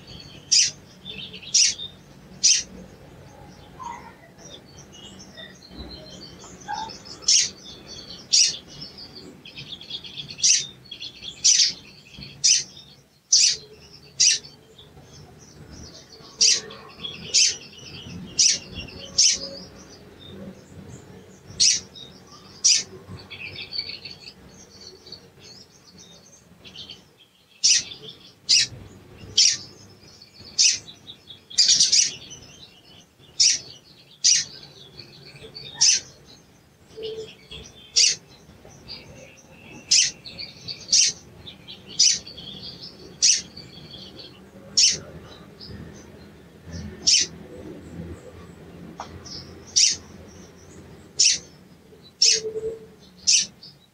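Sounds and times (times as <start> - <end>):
bird twittering: 0.0 - 47.6, 49.0 - 53.8
bird giving sharp chirps: 0.4 - 2.7, 12.4 - 14.6, 29.3 - 29.7, 33.3 - 34.6, 37.0 - 38.2, 47.1 - 47.3, 49.7 - 50.1, 51.2 - 51.6, 53.2 - 53.6.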